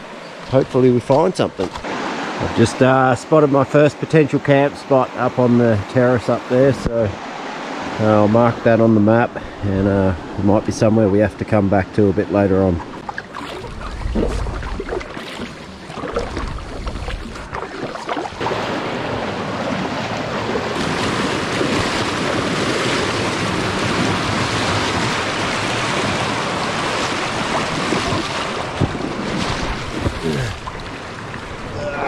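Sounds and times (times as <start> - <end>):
river water rushing: 0.0 - 10.9, 12.7 - 32.0
low rumbles on microphone: 12.8 - 15.1.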